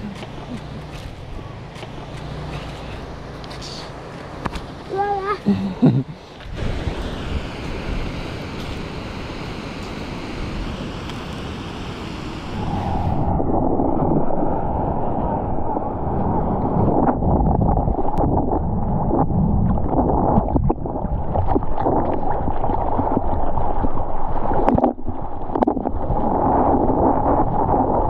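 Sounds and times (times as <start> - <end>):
muffled water rushing and sloshing: 0.0 - 28.0
surf noise: 0.0 - 28.0
wind buffeting microphone: 5.9 - 28.0.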